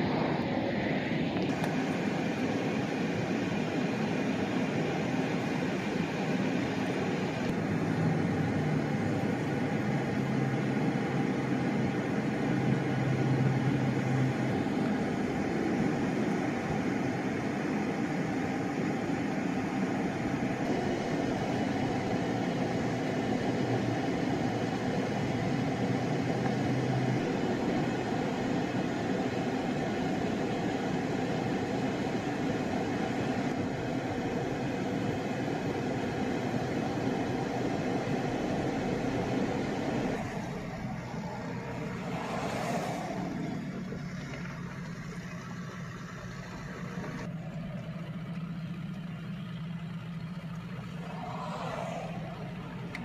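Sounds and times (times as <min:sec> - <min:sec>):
low hum: 0:38.1 - 0:53.0.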